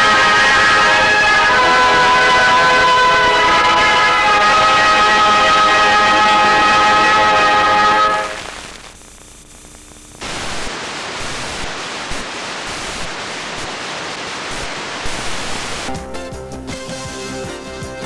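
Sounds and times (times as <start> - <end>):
videotape static hiss: 7.7 - 16.0
music: 15.9 - 18.0.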